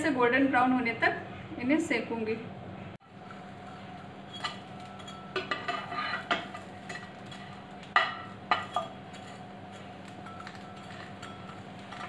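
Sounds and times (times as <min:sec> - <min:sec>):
knife scraping a frying pan: 0:03.1 - 0:12.0.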